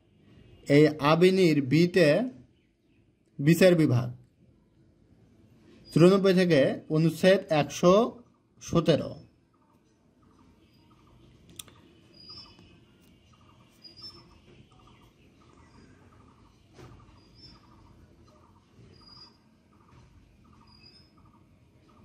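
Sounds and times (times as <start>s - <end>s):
small animals chirping: 9.5s - 22.0s.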